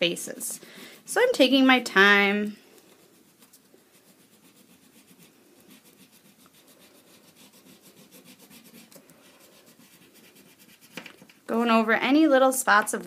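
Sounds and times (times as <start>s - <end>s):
crayon rubbing on paper: 2.9s - 11.3s.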